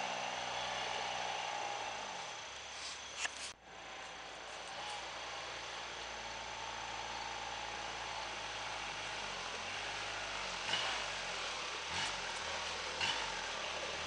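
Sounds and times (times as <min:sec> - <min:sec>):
distant diesel engine running: 0:00.0 - 0:14.0.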